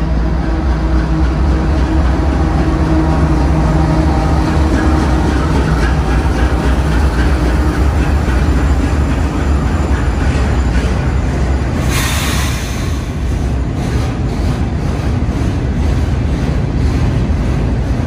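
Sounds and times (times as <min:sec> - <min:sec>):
diesel locomotive engines rumbling: 0:00.0 - 0:18.0
train wheels on rails: 0:00.0 - 0:18.0.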